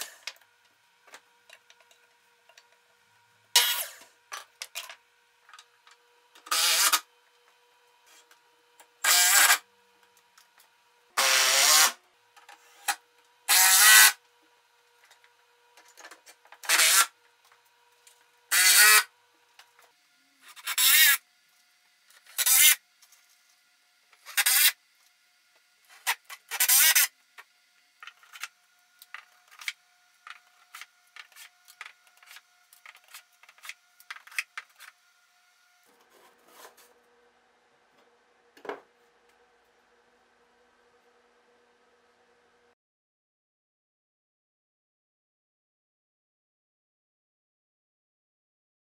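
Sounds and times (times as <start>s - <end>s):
wooden dividers scraping into slots: 36.0s - 36.9s.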